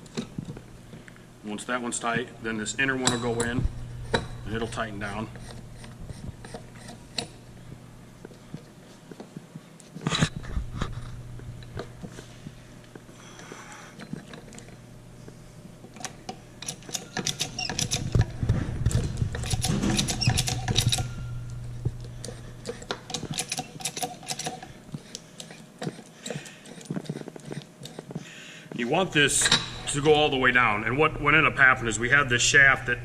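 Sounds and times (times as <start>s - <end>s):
steady low hum: 0.0s - 33.0s
metallic clicking and rattling: 15.9s - 21.4s, 22.1s - 28.1s.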